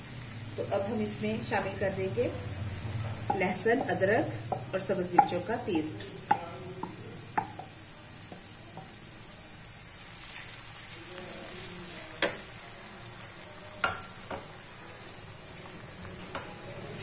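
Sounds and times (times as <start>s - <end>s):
paste sizzling in hot oil: 0.0s - 17.0s
wooden spoon knocking on pan: 3.0s - 9.0s, 12.2s - 12.4s, 13.8s - 14.5s.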